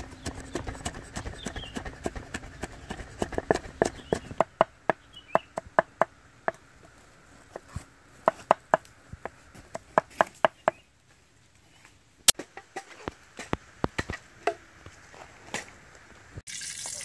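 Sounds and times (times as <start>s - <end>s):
cleaver knocking on wooden block: 0.2s - 6.6s.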